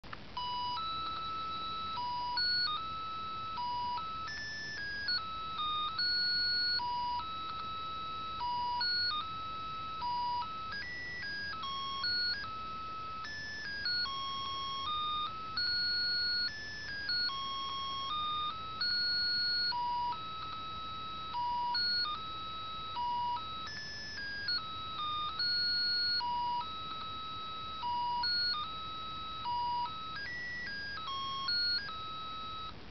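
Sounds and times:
toy playing electronic melody: 0.4 - 32.9.

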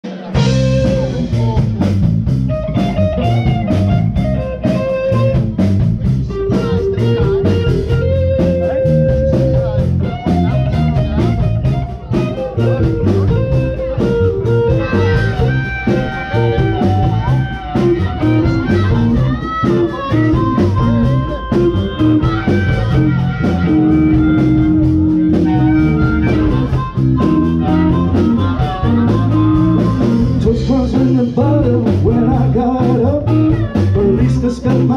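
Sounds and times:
bass guitar: 0.0 - 34.9
drum kit: 0.0 - 34.9
electric guitar: 0.0 - 34.9
harmonica: 14.5 - 30.4.

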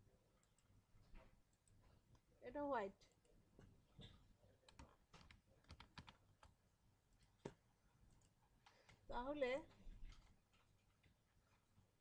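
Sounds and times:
typing on computer keyboard: 4.7 - 6.6.

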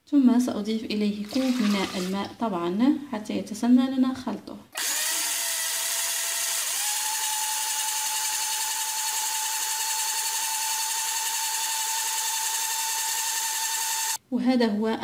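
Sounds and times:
blender motor whine: 4.8 - 14.2.

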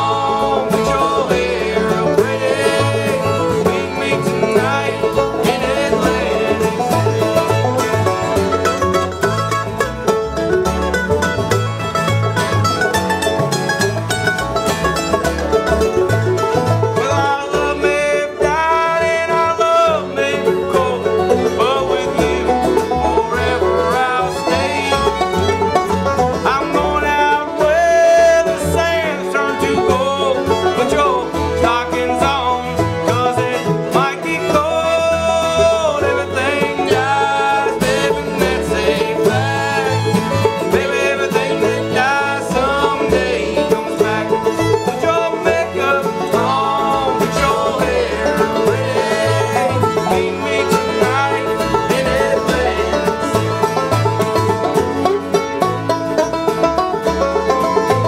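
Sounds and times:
two voices singing together: 0.0 - 7.6, 17.0 - 25.2, 27.6 - 53.2
acoustic guitar: 0.0 - 58.0
banjo: 0.0 - 58.0
fiddle: 0.0 - 58.0
mandolin: 0.0 - 58.0
upright bass: 0.0 - 58.0.

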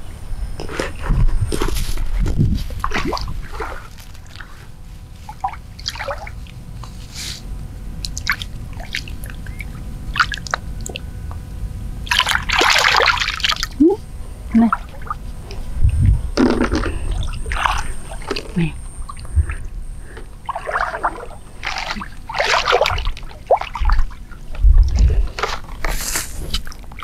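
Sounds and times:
loud splash: 20.5 - 24.0
water splashing around legs: 20.5 - 24.2.

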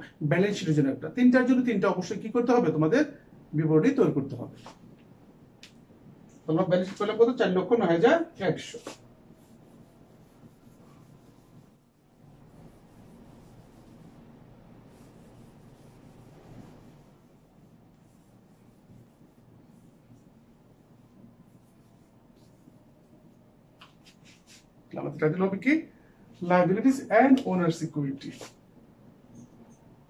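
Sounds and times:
whiteboard wiper rubbing: 8.6 - 23.2.

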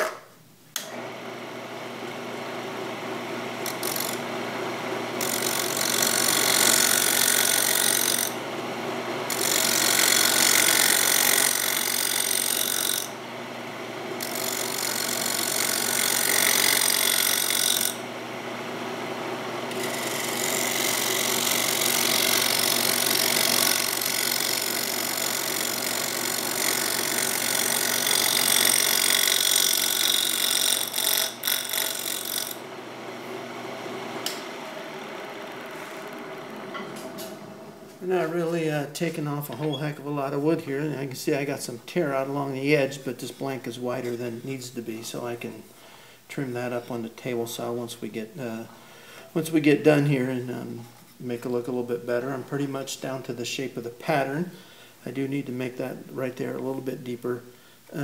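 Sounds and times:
lathe motor hum: 0.8 - 38.7.

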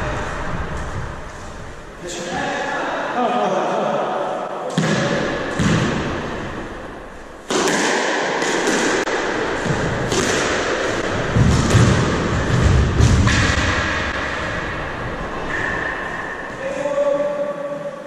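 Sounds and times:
squash ball hitting rackets and walls: 4.7 - 16.5.

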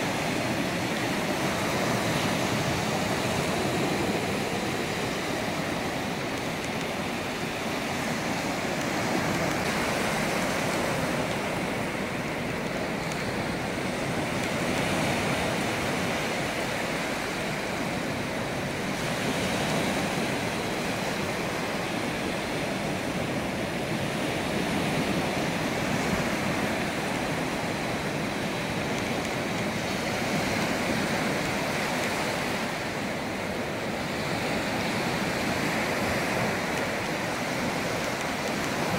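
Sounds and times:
waves washing up beach: 0.0 - 38.9.

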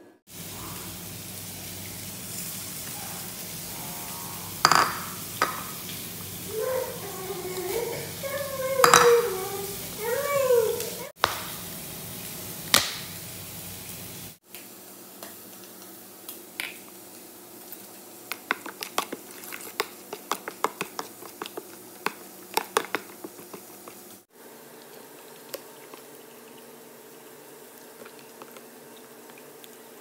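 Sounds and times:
juice dripping: 18.2 - 30.0.

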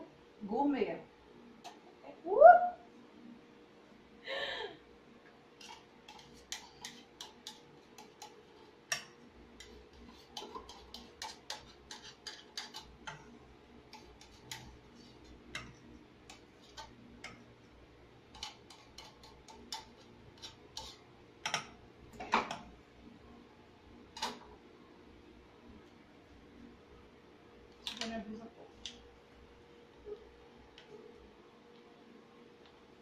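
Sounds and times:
spoon scraping a tin can: 5.6 - 9.0, 9.6 - 13.2, 13.9 - 17.0, 18.3 - 21.6.

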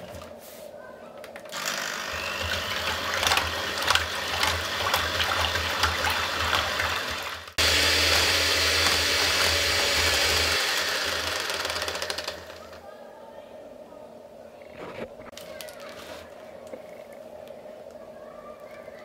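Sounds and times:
electric hand mixer whipping cream: 1.6 - 12.8.

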